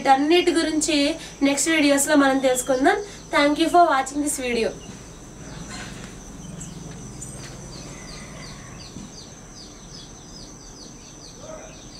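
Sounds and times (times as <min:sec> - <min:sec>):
high insect trill: 0:00.0 - 0:11.9
bird chirping: 0:00.4 - 0:11.9.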